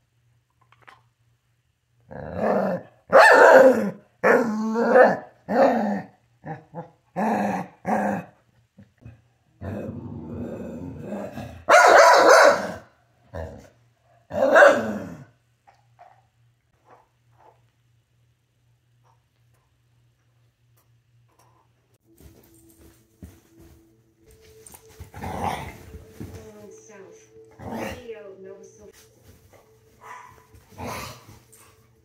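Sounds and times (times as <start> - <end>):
dogs barking: 3.1 - 5.3, 11.7 - 12.9, 14.3 - 15.2, 30.0 - 30.6
dogs growling: 9.0 - 11.7, 25.1 - 26.1, 27.5 - 28.1, 30.2 - 31.4.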